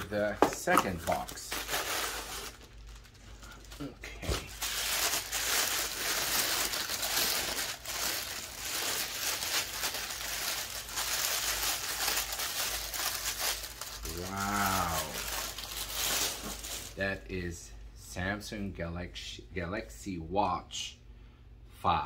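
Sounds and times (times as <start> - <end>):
packaging crinkling and rustling: 0.0 - 17.0
person humming: 14.0 - 15.4.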